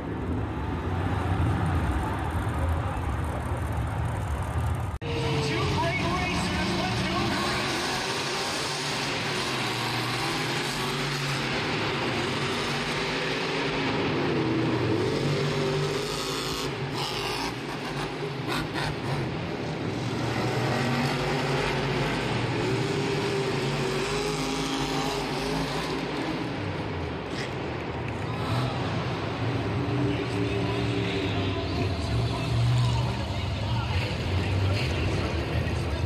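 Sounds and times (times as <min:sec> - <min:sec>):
truck engines revving: 0:00.0 - 0:36.0.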